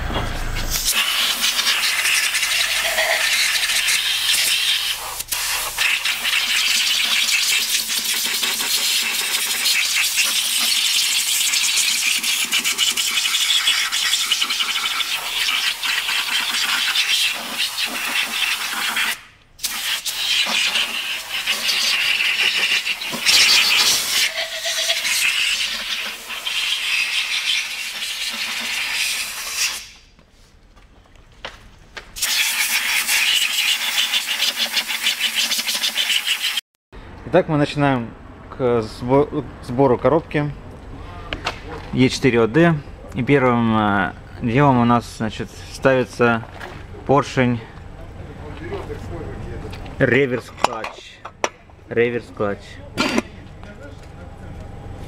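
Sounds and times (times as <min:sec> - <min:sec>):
compressed air blow gun hissing: 0:00.7 - 0:11.0.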